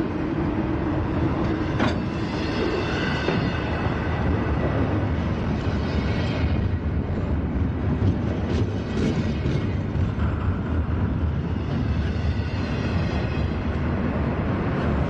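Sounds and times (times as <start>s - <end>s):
freight train rolling on rails: 0.0s - 15.0s.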